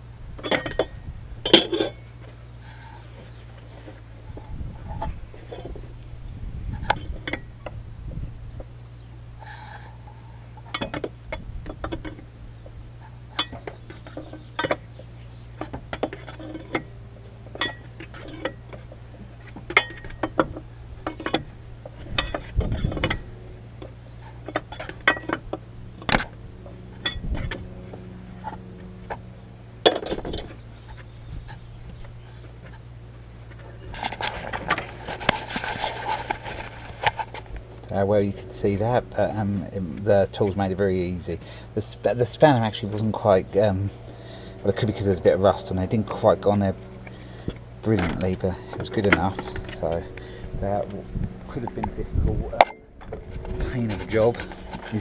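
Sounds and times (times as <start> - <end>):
steady low hum: 0.0 - 55.0
spanners clinking on metal: 0.4 - 2.1, 17.5 - 18.9
rustling: 8.6 - 38.5.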